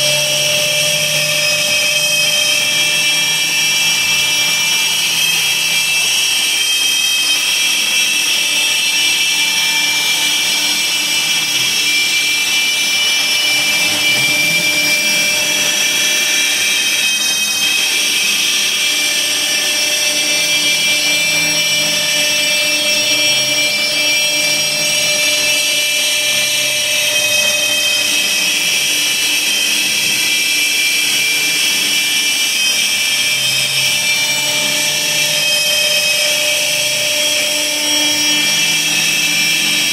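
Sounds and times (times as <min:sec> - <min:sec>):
router spindle whine cutting wood: 0:00.0 - 0:39.9.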